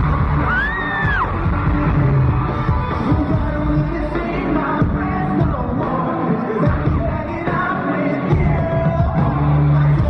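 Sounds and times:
live pop-rock band: 0.0 - 10.0
man singing lead vocals: 2.8 - 10.0.

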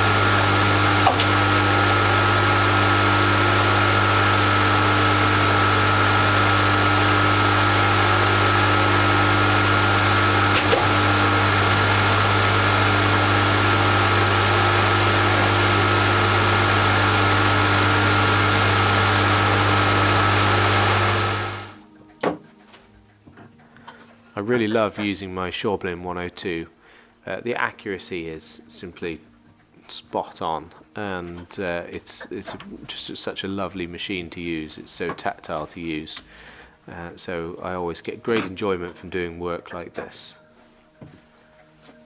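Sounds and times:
lathe running with whine: 0.0 - 21.8.

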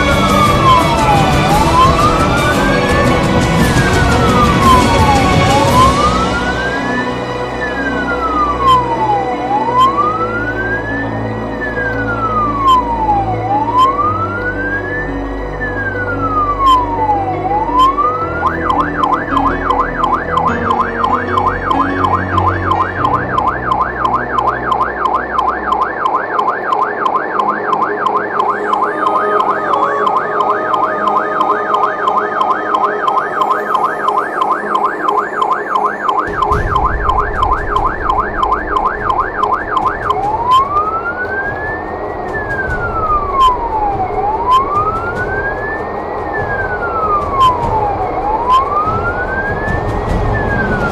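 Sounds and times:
fire engine siren: 0.0 - 50.9
truck engine and road noise: 0.0 - 50.9.

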